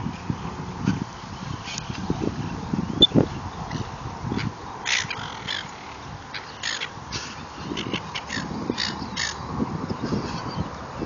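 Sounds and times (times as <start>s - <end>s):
gulls calling: 2.6s - 10.7s.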